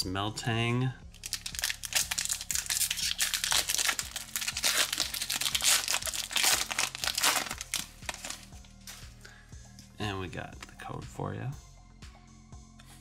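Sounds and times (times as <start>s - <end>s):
foil wrapper crinkling and tearing: 1.2s - 9.0s.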